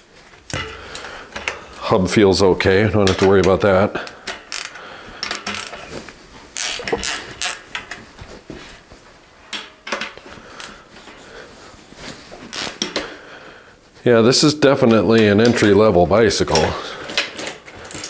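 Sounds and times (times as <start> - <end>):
bicycle wheel clicks and rattles: 0.2 - 1.8, 3.0 - 5.9, 6.5 - 8.1, 16.6 - 18.0.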